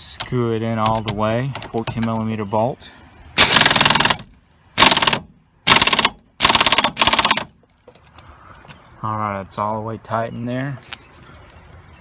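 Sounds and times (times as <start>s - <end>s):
pneumatic impact wrench hammering: 3.4s - 7.5s.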